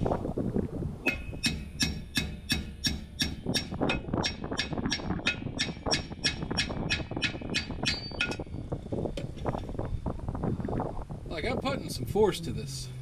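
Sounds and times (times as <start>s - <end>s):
hammer striking metal brake drum: 1.1s - 8.4s.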